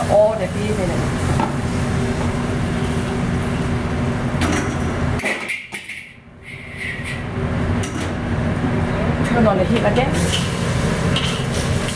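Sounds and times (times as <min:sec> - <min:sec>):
wok burner rushing: 0:00.0 - 0:08.9, 0:09.6 - 0:11.9.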